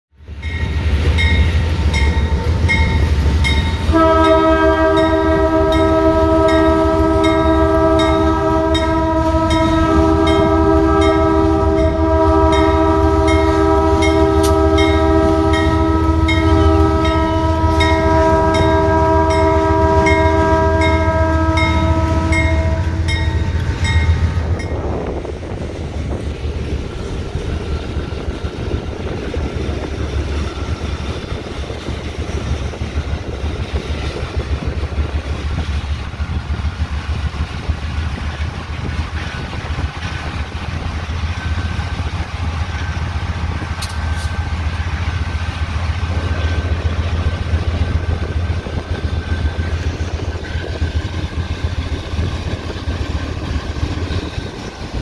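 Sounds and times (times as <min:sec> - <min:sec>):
diesel locomotive rumble: 0:00.1 - 0:55.0
locomotive air horn blast: 0:03.8 - 0:25.1.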